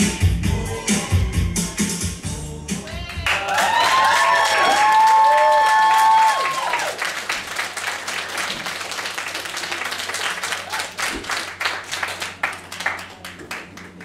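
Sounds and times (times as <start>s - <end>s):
audience clapping: 3.1s - 14.0s.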